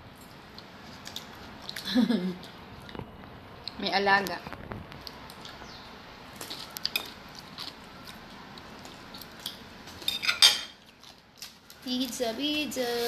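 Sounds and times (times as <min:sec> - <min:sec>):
tableware clatter: 0:10.0 - 0:10.8.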